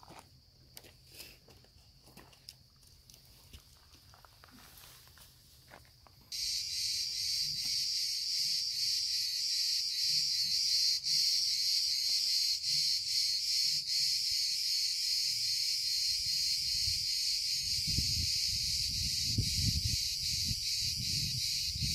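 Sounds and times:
cicadas buzzing: 4.8 - 21.9.

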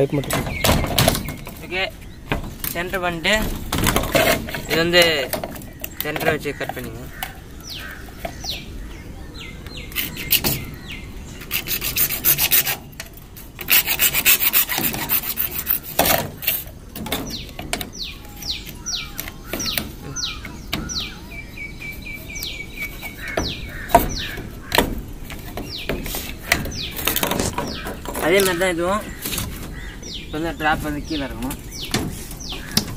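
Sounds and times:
plastic conduit scraping: 0.0 - 8.5, 9.8 - 21.2, 22.8 - 32.9
small bird chirping: 4.4 - 13.0, 13.7 - 32.9.

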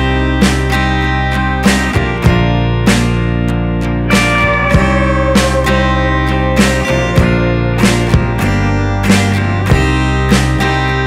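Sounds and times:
guitar playing held chords: 0.0 - 11.0
sharp guitar strums: 4.0 - 10.7.

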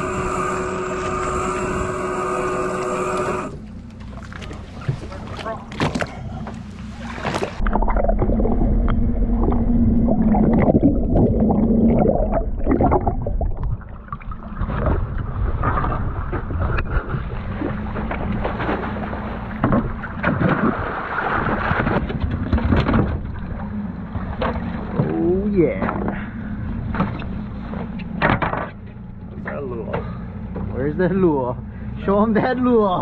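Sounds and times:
outboard motor humming: 0.0 - 33.0
water slapping against hull: 2.8 - 30.8
knocks on boat: 19.6 - 20.8, 26.9 - 28.8.

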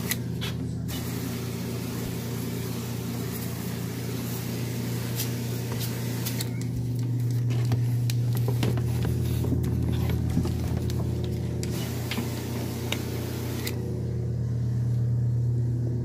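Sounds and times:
carpet cleaning machine humming: 0.0 - 16.0
machine hiss: 0.9 - 6.4.

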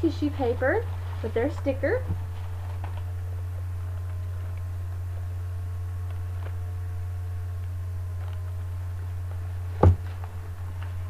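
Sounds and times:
low electrical hum: 0.0 - 11.0
sharp handling knock: 9.8 - 10.1.

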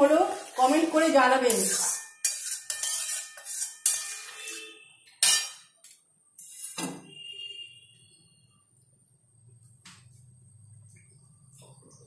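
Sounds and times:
metal spatula scraping a pan: 0.3 - 5.8, 6.4 - 6.9.

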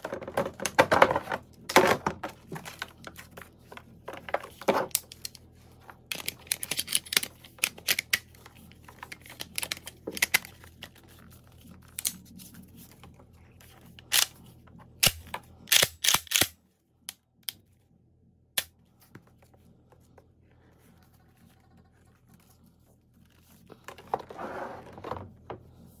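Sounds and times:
shotgun parts clicking and clacking: 6.1 - 8.4, 14.0 - 14.4, 15.0 - 16.6.

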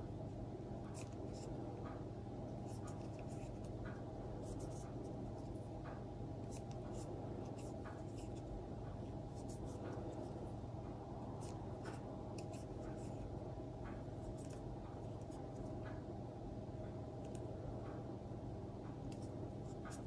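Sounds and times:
steady low hum: 0.0 - 20.0
crochet hook scratching yarn: 2.6 - 5.6, 6.4 - 10.4, 11.3 - 13.3.

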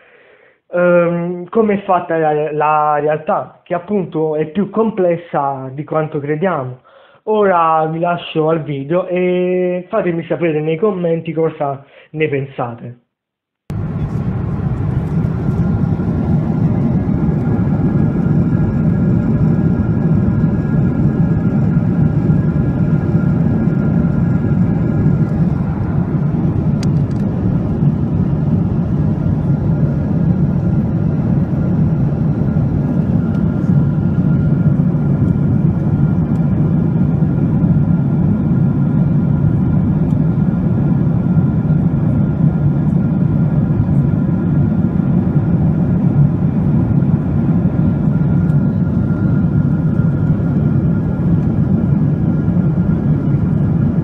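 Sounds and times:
jet engines and airflow rush: 13.7 - 54.0.

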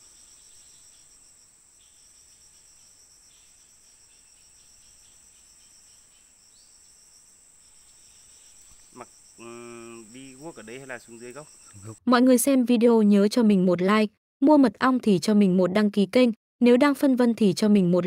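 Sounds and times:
insects trilling chorus: 0.0 - 12.0.

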